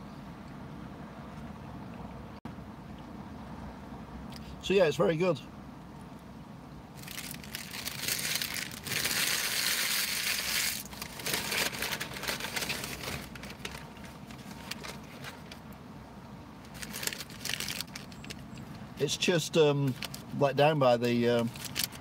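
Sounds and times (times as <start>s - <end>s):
paper packaging rustling: 7.0s - 15.6s, 16.7s - 18.4s, 19.9s - 20.3s, 21.4s - 22.0s.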